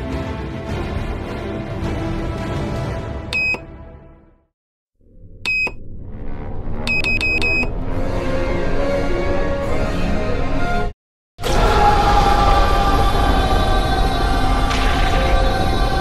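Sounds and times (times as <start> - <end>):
film music: 0.0 - 4.5, 5.1 - 16.0
phone button beeps: 3.4 - 3.6, 5.5 - 5.8, 6.9 - 7.7.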